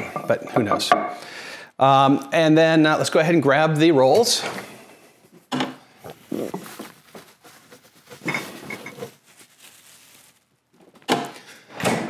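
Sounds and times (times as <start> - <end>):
things knocking and rustling: 4.5 - 12.0.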